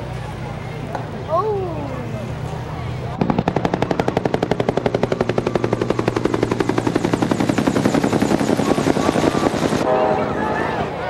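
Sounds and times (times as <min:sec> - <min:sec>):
helicopter rotor chop: 0:02.3 - 0:09.9.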